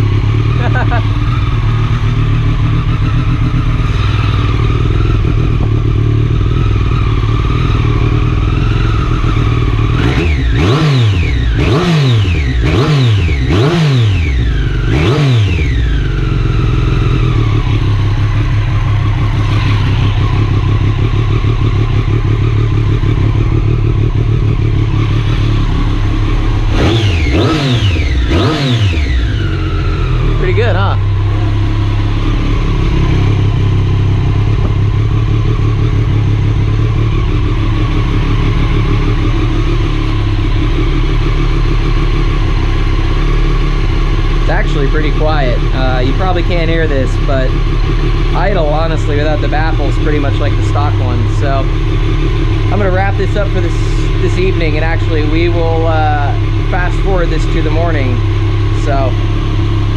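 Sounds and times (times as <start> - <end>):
motorcycle engine idling: 0.0 - 59.9
throttle blips revving: 8.5 - 17.8, 26.4 - 31.6.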